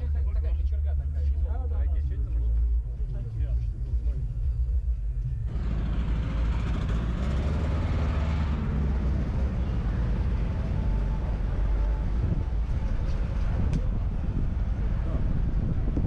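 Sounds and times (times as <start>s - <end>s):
wind rumble on microphone: 8.8s - 16.0s
faint crowd voices: 9.0s - 16.0s.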